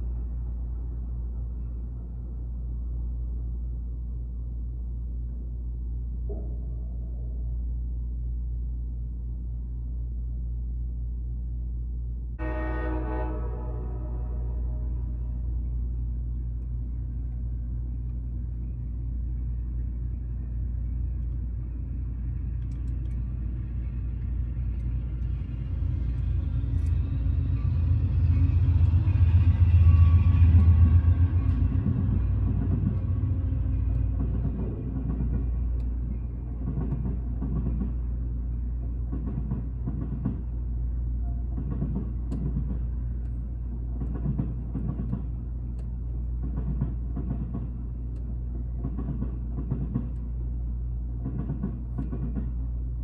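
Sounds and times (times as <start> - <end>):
train rumble: 0.0 - 53.0
train wheels knocking: 31.5 - 33.0, 34.0 - 35.6, 36.6 - 38.0, 39.1 - 40.5, 41.5 - 42.9, 44.0 - 45.4, 46.4 - 47.8, 48.8 - 50.2, 51.2 - 52.6.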